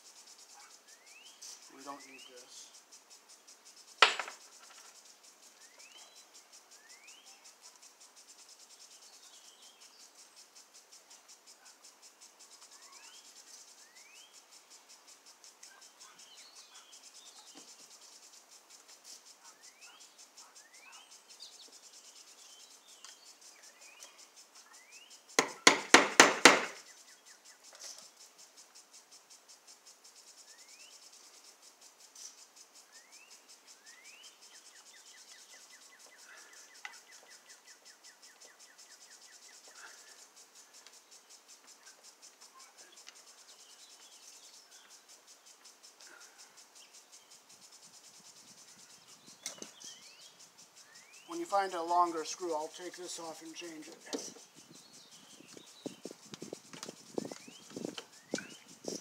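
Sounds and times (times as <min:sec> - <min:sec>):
insect trilling: 0:00.0 - 0:59.0
bird chirps: 0:00.2 - 0:25.7, 0:26.6 - 0:29.3, 0:30.1 - 0:59.0
sharp knocks: 0:04.0 - 0:04.9, 0:25.4 - 0:26.8.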